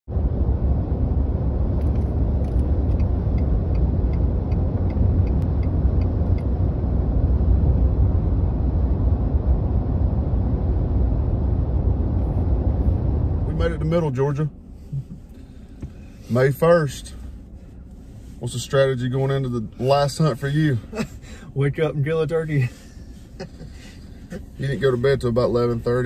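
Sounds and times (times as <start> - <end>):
car cabin road rumble: 0.1 - 26.0
light ticking: 2.5 - 6.5.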